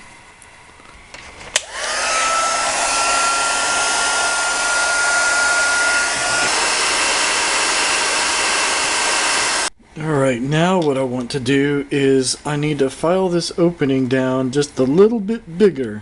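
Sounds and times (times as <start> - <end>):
hot-air gun fan blowing: 1.1 - 9.8.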